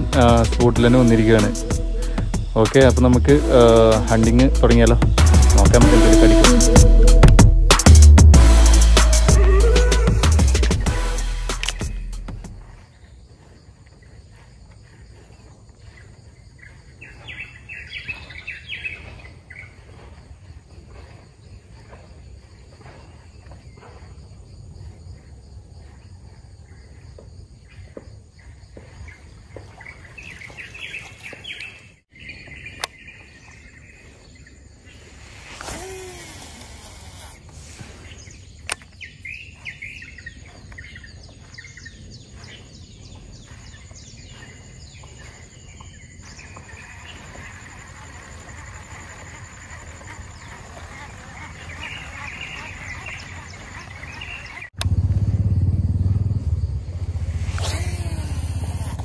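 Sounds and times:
birds chirping and calling: 0.0 - 8.0, 8.7 - 54.8
sharp clicks: 11.5 - 11.9, 38.6 - 39.0
low outdoor rumble: 54.8 - 59.0.

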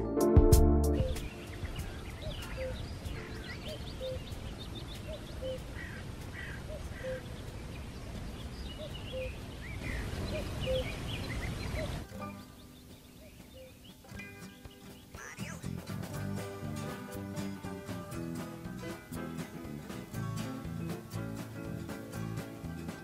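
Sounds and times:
high bird chirps: 1.0 - 15.8.

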